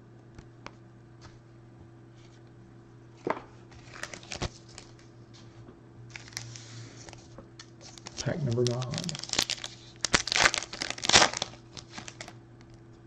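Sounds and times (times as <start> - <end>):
steady low hum: 0.0 - 13.0
clicks and crinkles of foil packs: 3.8 - 5.1, 6.1 - 12.4.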